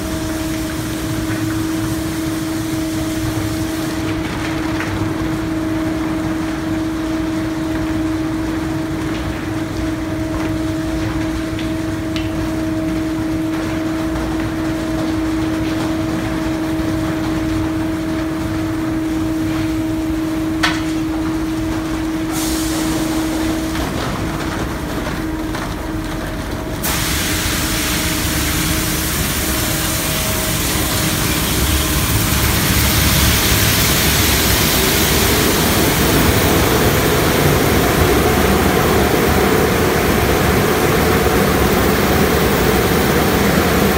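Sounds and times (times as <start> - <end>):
machine hum: 0.0 - 43.9
hiss of water spray: 0.1 - 4.1, 22.3 - 23.2, 26.8 - 37.2.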